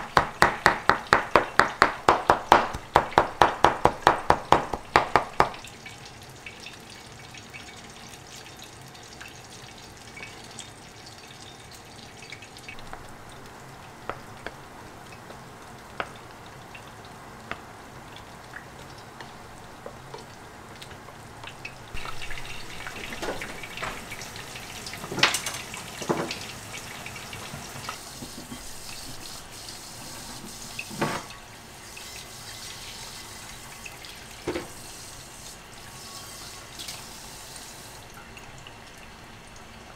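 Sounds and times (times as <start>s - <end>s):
kitchen tap running: 0.0s - 39.9s
frying pan being scrubbed: 22.0s - 33.7s.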